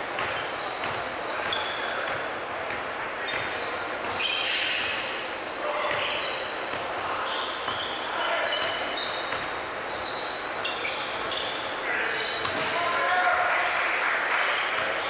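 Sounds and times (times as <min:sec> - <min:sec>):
sneakers squeaking on court: 0:00.0 - 0:15.0
basketball bouncing: 0:00.1 - 0:04.2, 0:05.8 - 0:07.0
players shouting: 0:11.8 - 0:15.0.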